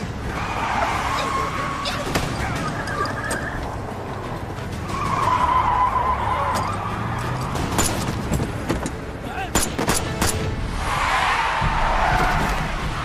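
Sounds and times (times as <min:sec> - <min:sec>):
car tyres squealing: 0:00.0 - 0:08.2, 0:10.7 - 0:13.0
car engine rumble: 0:00.0 - 0:09.4.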